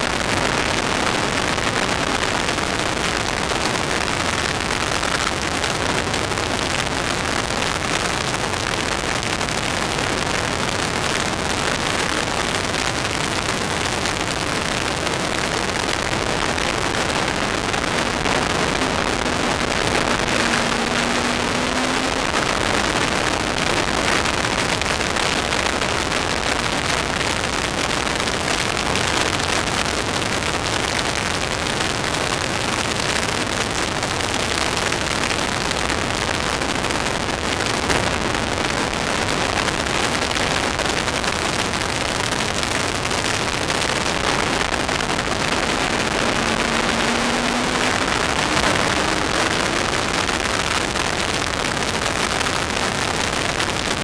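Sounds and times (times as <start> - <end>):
wind and road noise: 0.0 - 54.0
race car engine: 15.2 - 26.8, 36.2 - 41.1, 43.8 - 51.0.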